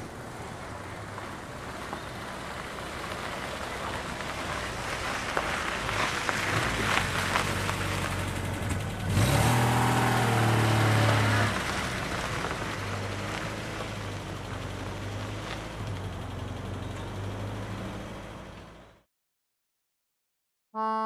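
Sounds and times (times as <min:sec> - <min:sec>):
car engine accelerating: 0:00.0 - 0:19.0
tyres crunching on gravel: 0:00.2 - 0:17.0.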